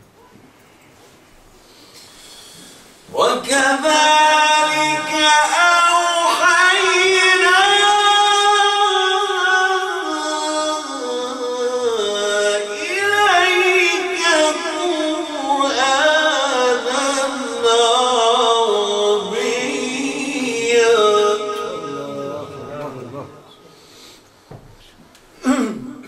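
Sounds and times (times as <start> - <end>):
man chanting melodically: 3.1 - 23.7.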